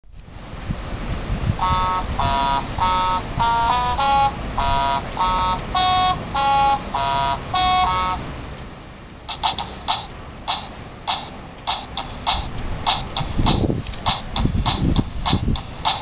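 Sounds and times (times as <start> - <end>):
toy chiming chords: 1.6 - 8.3.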